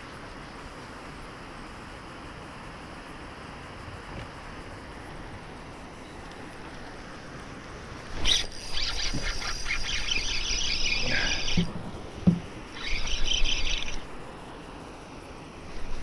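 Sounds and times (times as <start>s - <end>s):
fishing reel whirring: 8.0s - 14.3s
dull knocks: 11.5s - 12.6s.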